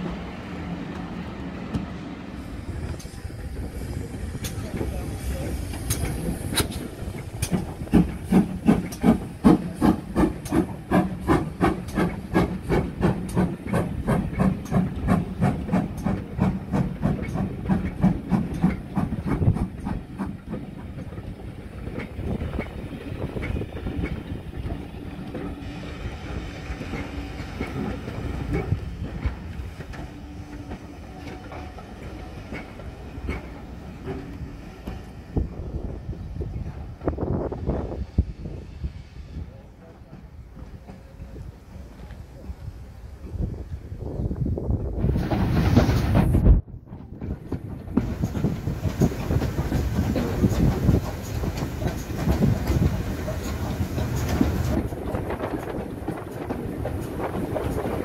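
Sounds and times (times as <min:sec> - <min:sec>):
train rumble: 0:00.0 - 0:58.0
steam hissing: 0:02.3 - 0:20.6, 0:48.0 - 0:55.5
steam locomotive chuffing: 0:02.3 - 0:35.8, 0:45.0 - 0:58.0.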